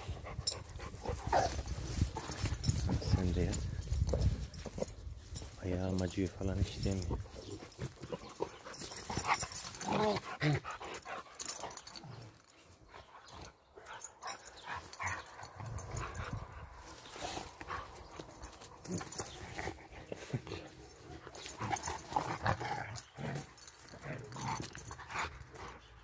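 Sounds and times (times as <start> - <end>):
dogs scuffling in dry leaves: 0.6 - 10.6, 16.3 - 22.7
low dog growls: 8.0 - 10.7, 18.6 - 25.3.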